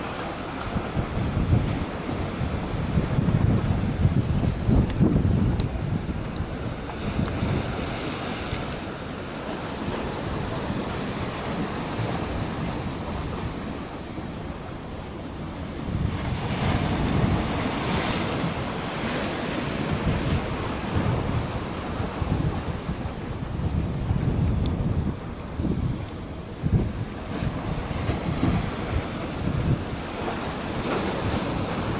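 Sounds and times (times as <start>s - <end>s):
sea waves washing: 0.0s - 31.9s
wind buffeting microphone: 0.0s - 31.9s.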